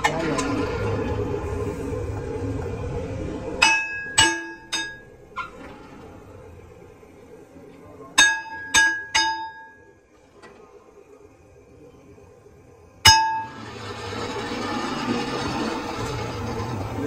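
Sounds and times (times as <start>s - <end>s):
lathe running: 0.0s - 9.8s, 13.1s - 17.0s
hammer striking steel pipe: 3.6s - 5.0s, 8.2s - 9.8s, 13.1s - 13.7s.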